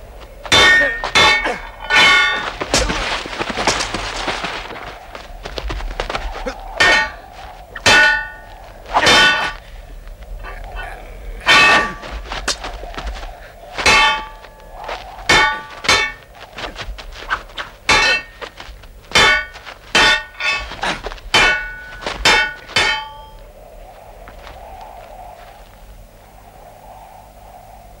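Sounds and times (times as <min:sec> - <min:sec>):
swords clashing: 0:00.5 - 0:03.0, 0:06.8 - 0:07.2, 0:07.9 - 0:08.4, 0:09.0 - 0:09.6, 0:11.5 - 0:12.6, 0:13.9 - 0:14.4, 0:15.3 - 0:16.3, 0:17.6 - 0:18.4, 0:19.1 - 0:23.2.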